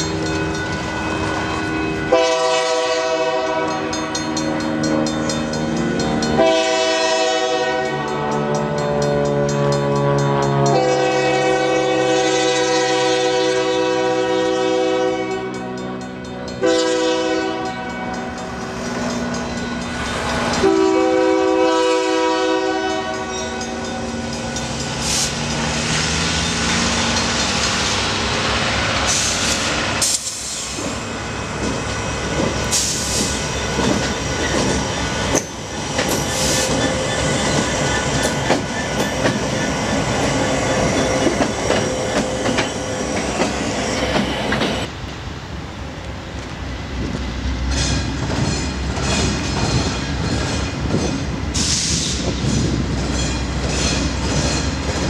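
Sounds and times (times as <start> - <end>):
diesel train running: 0.0 - 55.0
locomotive air horn blasts: 1.8 - 3.9, 6.4 - 8.5, 9.5 - 15.8, 16.6 - 18.1, 20.6 - 23.8.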